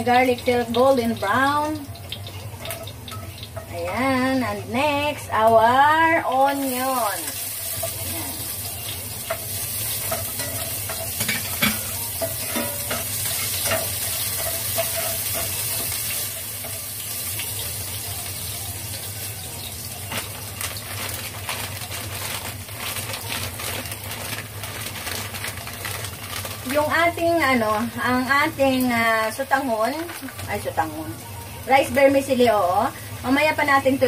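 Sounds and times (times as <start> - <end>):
onions sizzling in hot oil: 0.0 - 34.0
utensil scraping pot: 6.7 - 16.9.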